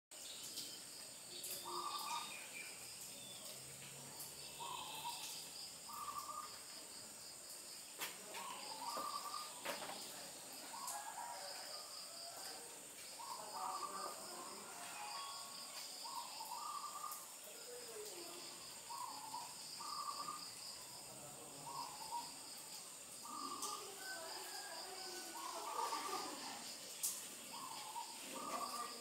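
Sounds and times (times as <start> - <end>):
cricket chirps: 0.2 - 29.0
insects droning: 0.2 - 29.0
bird calls: 1.4 - 3.6, 4.6 - 6.6, 8.3 - 10.0, 16.0 - 17.2, 18.9 - 20.6, 27.5 - 29.0.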